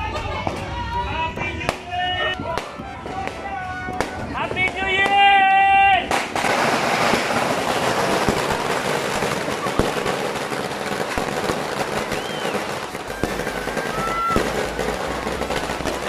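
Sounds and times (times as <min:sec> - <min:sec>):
fireworks bangs: 0:00.0 - 0:16.0
fireworks crackling and popping: 0:00.0 - 0:16.0
fireworks whistling: 0:00.0 - 0:16.0.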